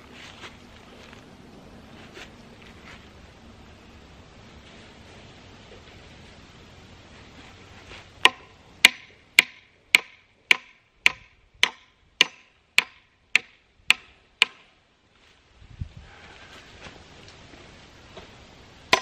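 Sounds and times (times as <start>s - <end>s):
hammer blows on wooden post: 8.2s - 14.6s.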